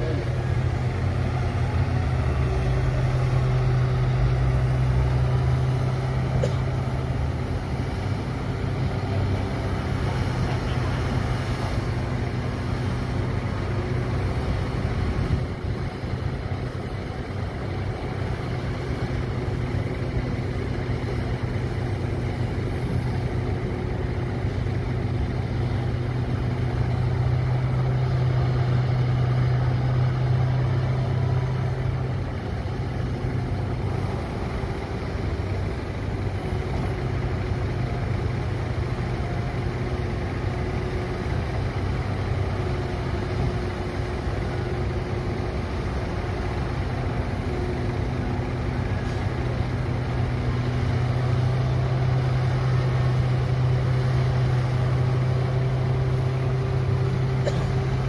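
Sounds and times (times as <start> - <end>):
excavator diesel engines humming: 0.0 - 58.0.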